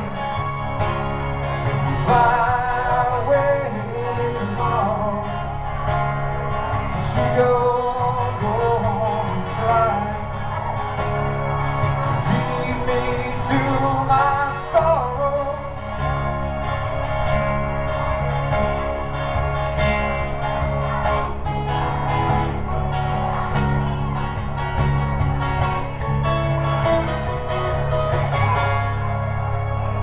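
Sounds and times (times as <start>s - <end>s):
acoustic guitar strumming: 0.0s - 30.0s
man singing: 1.7s - 5.9s, 6.8s - 10.6s, 12.3s - 16.1s.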